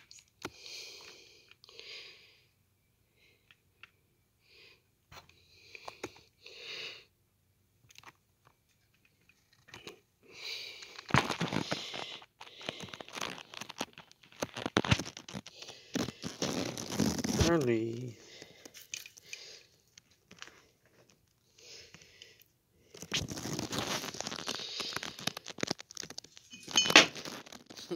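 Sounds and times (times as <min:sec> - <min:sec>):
loud close crackling and rustling: 0:10.5 - 0:18.8, 0:22.9 - 0:27.9.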